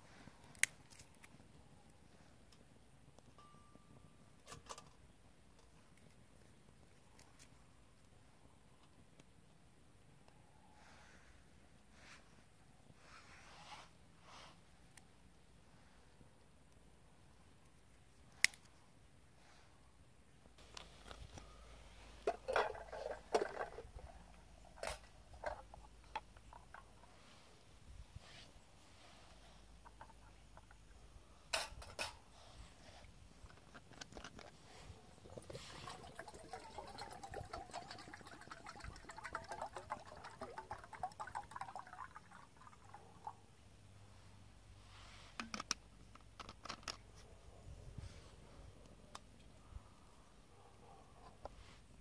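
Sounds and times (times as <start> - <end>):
metal pot and cup clinking: 22.3 - 23.9
water pouring into steel pot: 35.2 - 43.0.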